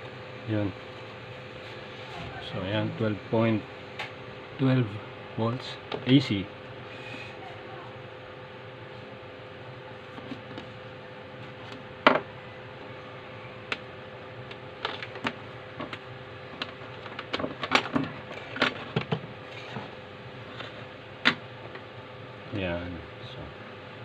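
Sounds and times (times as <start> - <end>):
steady background hiss: 0.0 - 17.5.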